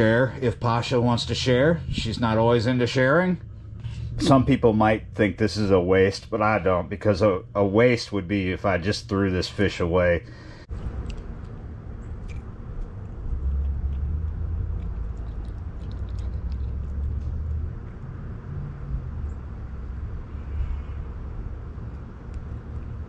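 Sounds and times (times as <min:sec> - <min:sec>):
steady low rumble: 0:00.0 - 0:23.0
cat licking and chewing: 0:12.2 - 0:18.1.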